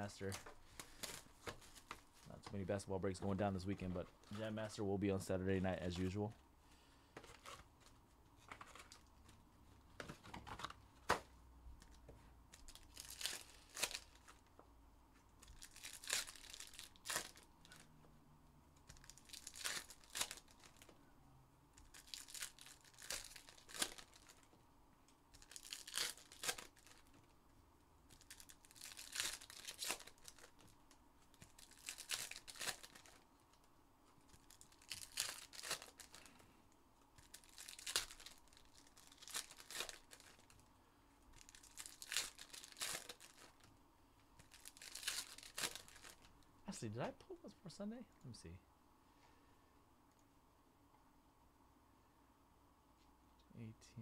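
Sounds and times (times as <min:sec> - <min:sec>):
foil wrappers ripping and crinkling: 0:12.5 - 0:14.4, 0:15.4 - 0:17.8, 0:18.9 - 0:20.9, 0:21.8 - 0:24.5, 0:25.3 - 0:27.2, 0:28.1 - 0:33.6, 0:34.2 - 0:36.4, 0:37.2 - 0:40.7, 0:41.3 - 0:43.7, 0:44.4 - 0:46.4.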